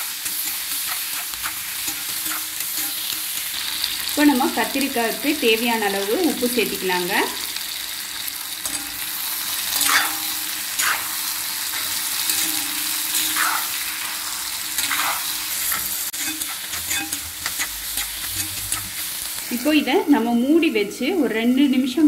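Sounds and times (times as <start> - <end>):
vegetables sizzling in oil: 0.0 - 22.0
ladle scraping pan: 9.8 - 13.9, 14.8 - 19.5.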